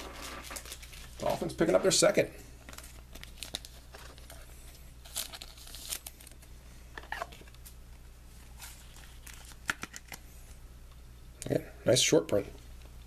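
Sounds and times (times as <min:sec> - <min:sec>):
plastic sleeve crinkling: 0:00.0 - 0:06.5, 0:08.5 - 0:10.2.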